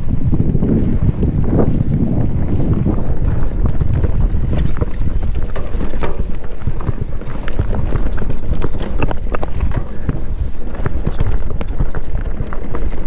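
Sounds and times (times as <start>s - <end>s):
wind buffeting microphone: 0.0s - 13.0s
clicks and rattles: 3.8s - 13.0s.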